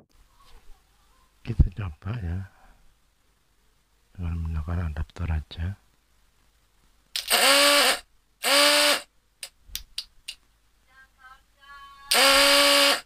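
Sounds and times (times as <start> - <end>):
electric horn buzzing: 12.1 - 13.0.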